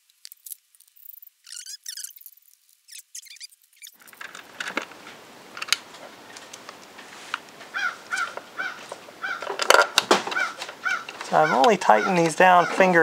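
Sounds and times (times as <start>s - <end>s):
bird cawing: 7.7s - 13.0s.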